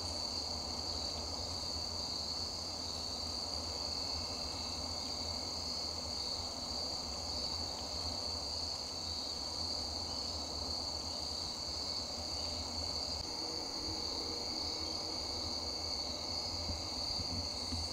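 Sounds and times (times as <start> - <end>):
insects trilling: 0.0 - 17.9.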